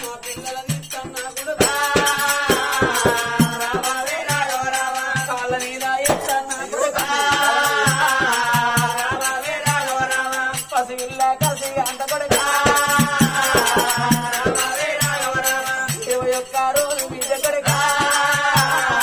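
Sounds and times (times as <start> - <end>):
jingling percussion: 0.0 - 19.0
steady drum beat: 0.0 - 19.0.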